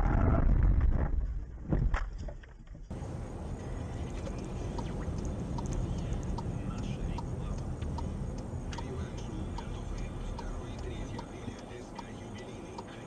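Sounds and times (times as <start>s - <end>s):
car rumbling across rough ground: 2.9s - 11.2s
steady traffic noise: 2.9s - 13.0s
faint ticks: 4.0s - 13.0s.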